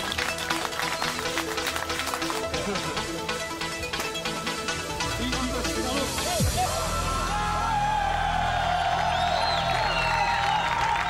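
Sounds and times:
music playing: 0.0s - 11.0s
crowd cheering and whooping: 6.4s - 11.0s.

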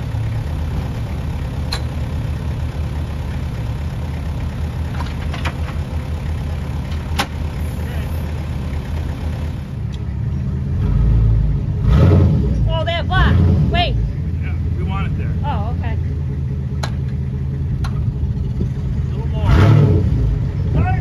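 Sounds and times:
vehicle engine idling: 0.0s - 21.0s
hitch clicks and knocks: 4.9s - 5.9s, 16.8s - 17.2s, 17.8s - 18.1s.

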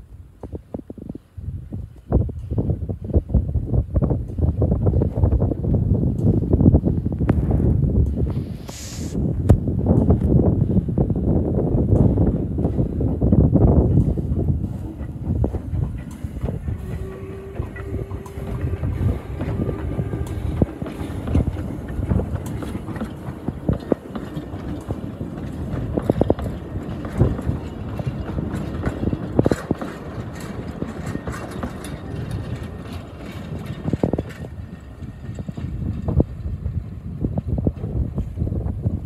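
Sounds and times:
low train rumble: 0.0s - 39.0s
steam locomotive working: 9.9s - 39.0s
wheels knocking over rail joints: 14.8s - 36.8s.

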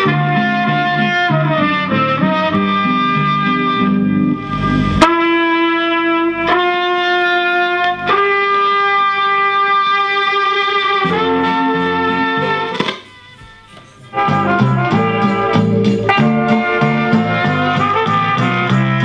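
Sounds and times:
vinyl record music with long held notes: 0.0s - 8.5s, 11.0s - 19.0s.

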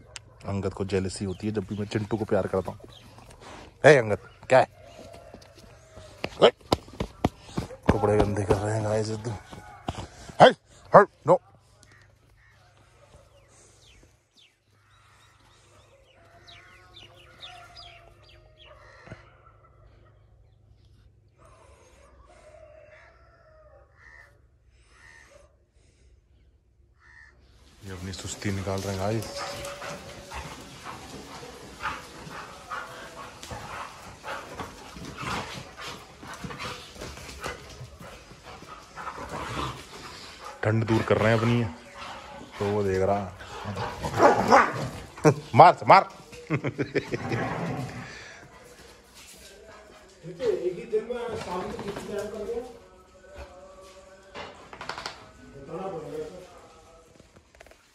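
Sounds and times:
low outdoor background: 0.0s - 57.9s
scuffling: 1.6s - 10.5s, 27.6s - 50.3s
dogs play-fighting: 2.1s - 10.9s, 27.7s - 50.2s, 51.2s - 55.4s
faint bird calls: 21.5s - 25.6s, 26.9s - 27.8s.

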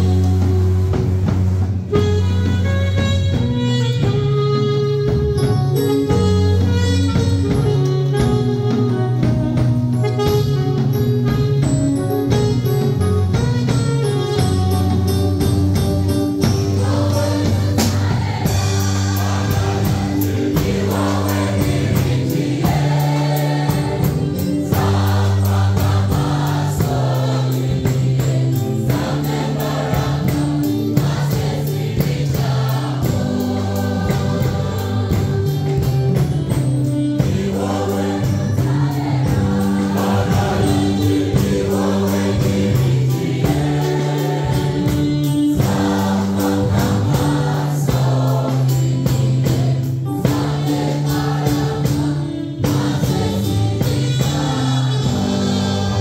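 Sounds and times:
choir singing: 16.4s - 36.2s, 36.9s - 56.0s.

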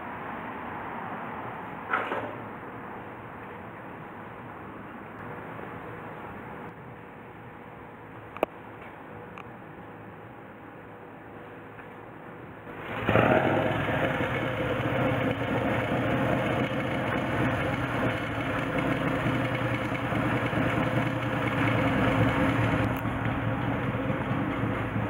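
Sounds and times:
motorcycle engine running: 12.8s - 25.0s.

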